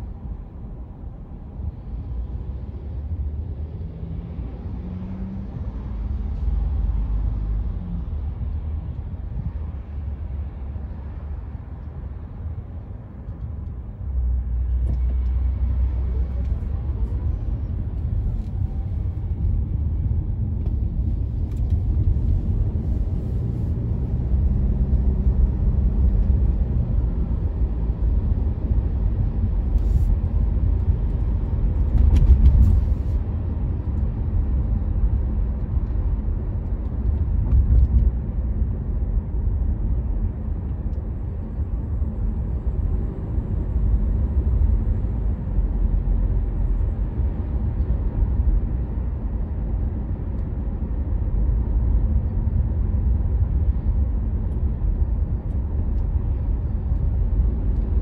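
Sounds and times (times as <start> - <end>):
car engine and tyres rumbling: 0.0 - 58.0.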